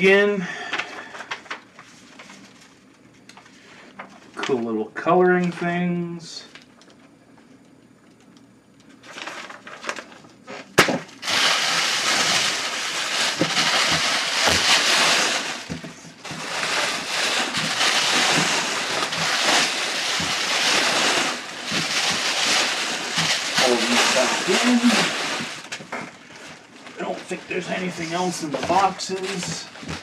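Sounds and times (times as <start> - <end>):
plastic packing pillows crinkling: 9.0 - 30.0.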